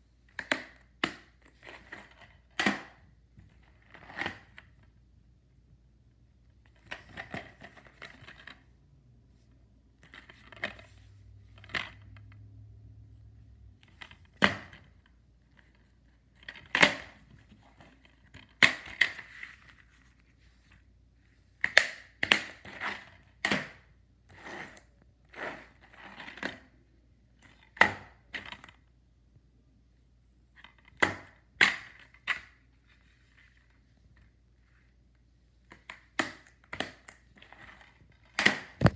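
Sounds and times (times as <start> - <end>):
plastic cases clicking and snapping: 35.7 - 38.9.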